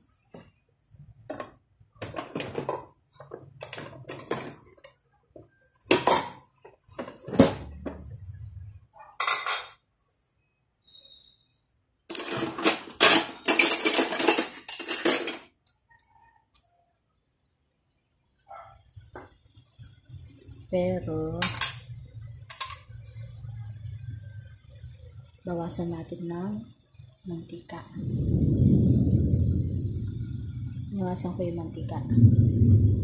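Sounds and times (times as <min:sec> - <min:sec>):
cookware clattering: 0:01.3 - 0:05.0, 0:05.8 - 0:08.0, 0:09.0 - 0:09.8, 0:12.1 - 0:15.5, 0:21.4 - 0:22.9.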